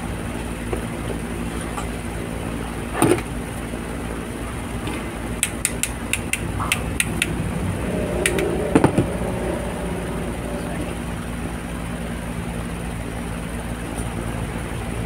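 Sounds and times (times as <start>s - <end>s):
steady low hum: 0.0s - 15.0s
hammer tapping metal: 5.4s - 7.4s.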